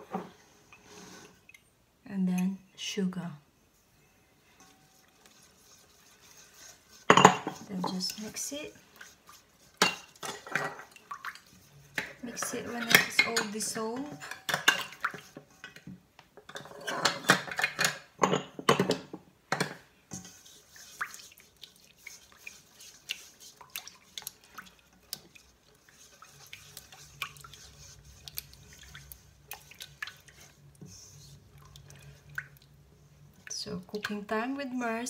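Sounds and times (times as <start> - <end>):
liquid swishing in a bowl: 3.7 - 15.9, 20.1 - 35.0
spatula scratching metal bowl: 4.6 - 15.8, 20.1 - 32.3.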